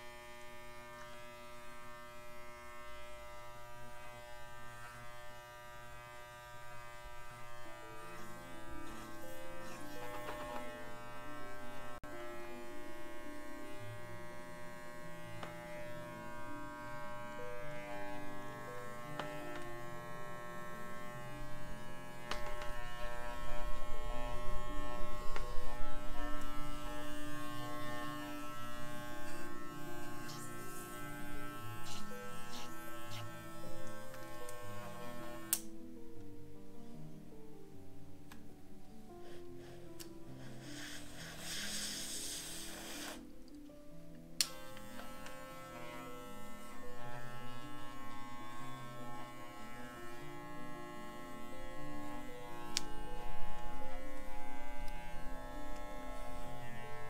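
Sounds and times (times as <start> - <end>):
electric hair clippers buzzing: 0.0 - 35.8, 39.3 - 43.3, 44.4 - 57.0.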